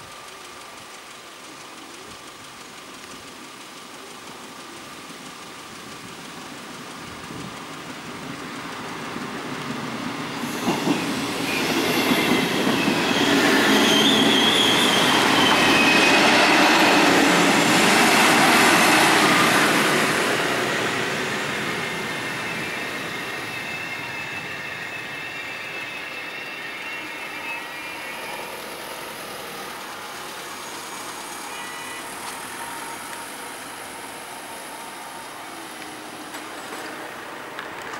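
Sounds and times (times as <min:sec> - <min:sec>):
train passing: 0:00.0 - 0:37.9
high wheel squeal: 0:10.2 - 0:37.6.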